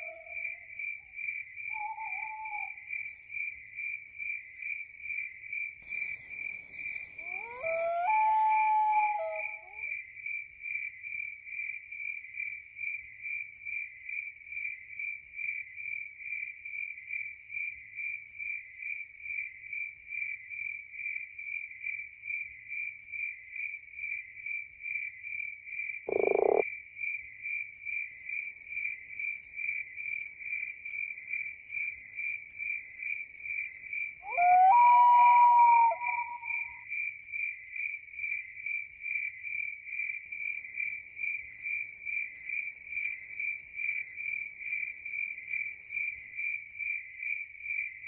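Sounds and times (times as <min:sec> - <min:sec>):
crickets chirping: 0:00.0 - 0:48.0
rasping high insect calls: 0:01.7 - 0:03.3, 0:05.8 - 0:09.8, 0:26.1 - 0:26.6, 0:29.4 - 0:36.8
short loud croak: 0:26.1 - 0:26.6.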